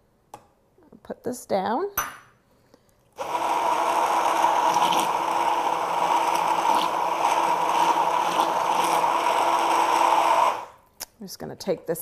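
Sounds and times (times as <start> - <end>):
hand blender whirring: 3.2 - 10.8.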